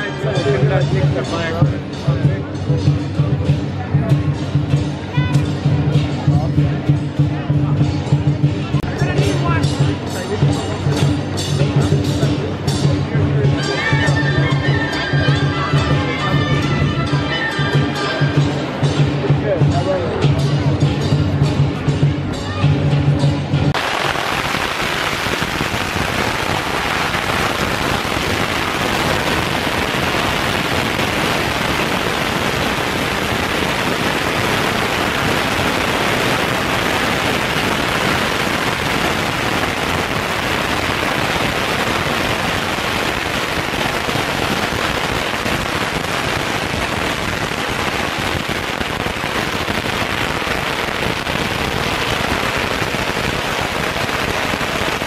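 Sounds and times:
firecrackers crackling: 0:23.6 - 0:55.0.

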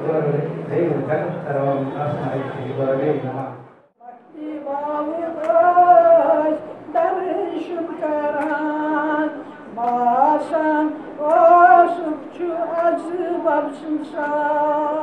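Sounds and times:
elderly woman singing unaccompanied: 0:04.0 - 0:15.0.

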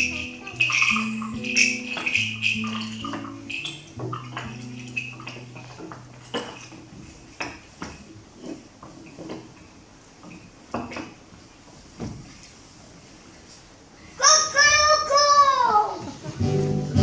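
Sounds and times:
hand percussion knocks and clinks: 0:00.0 - 0:09.7.

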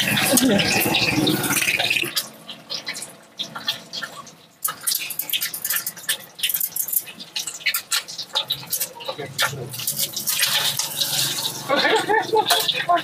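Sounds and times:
food frying in hot oil: 0:00.0 - 0:13.0
metal spatula scraping wok: 0:03.6 - 0:13.0.

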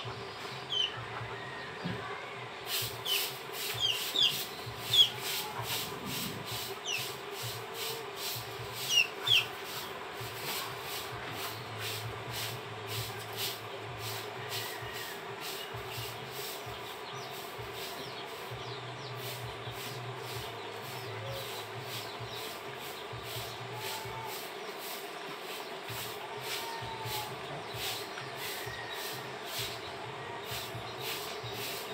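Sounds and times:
falling bird chirps: 0:02.7 - 0:07.5, 0:08.8 - 0:09.8
rhythmic high rasping: 0:02.8 - 0:31.9.

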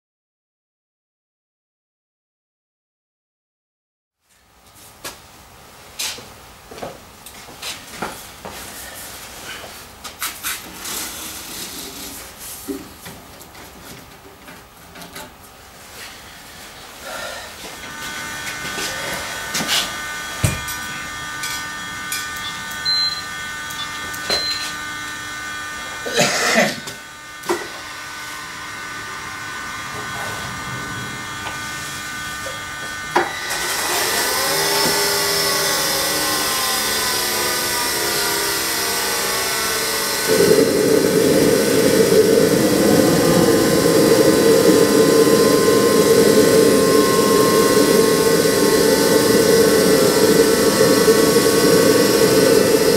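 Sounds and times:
jet turbine whine rising: 0:17.0 - 0:26.2, 0:26.8 - 0:52.9
loud jet rush: 0:28.9 - 0:32.8, 0:40.3 - 0:52.9.

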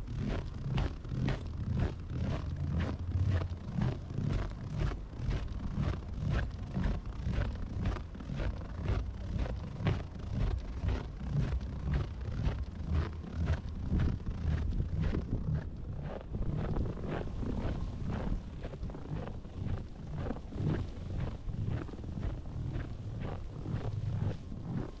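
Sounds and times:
low rumble: 0:00.0 - 0:25.0
footsteps crunching in snow: 0:13.0 - 0:25.0.

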